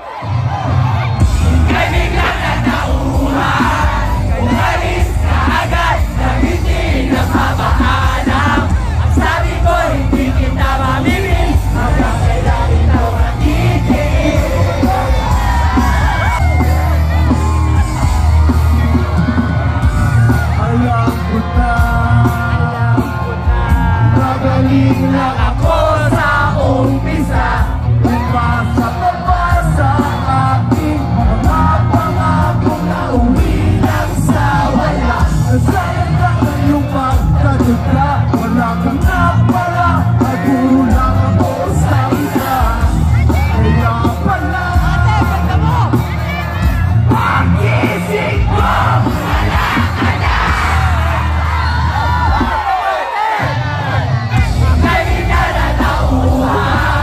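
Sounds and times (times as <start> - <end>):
crowd yelling: 0.0 - 57.0
heavy bass: 0.2 - 57.0
person singing into a microphone: 20.4 - 49.5.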